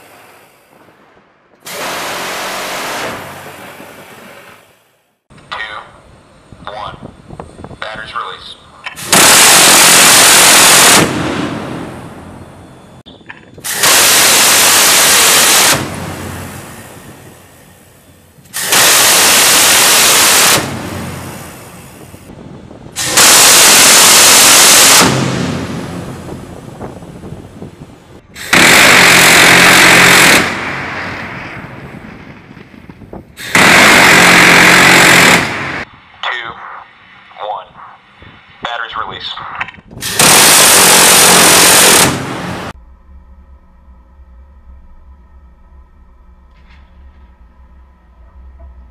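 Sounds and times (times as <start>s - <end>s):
gatling cannon firing bursts: 1.6s - 4.3s, 9.0s - 12.2s, 13.6s - 17.6s, 18.5s - 22.1s, 23.0s - 26.9s, 28.4s - 32.5s, 33.4s - 35.8s, 40.0s - 42.8s
gatling gun firing bursts: 9.1s - 11.2s, 28.5s - 30.7s, 33.4s - 35.8s, 40.1s - 42.5s.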